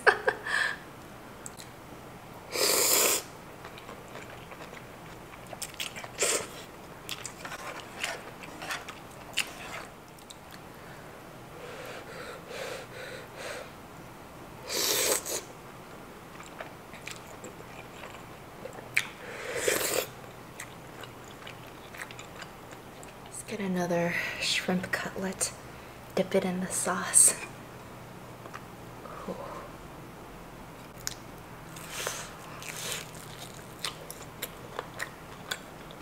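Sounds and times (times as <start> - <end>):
loud noodle slurps: 2.5 - 3.3, 14.7 - 15.4, 19.5 - 20.1
soft chewing: 3.6 - 10.8, 16.3 - 23.3, 30.8 - 36.0.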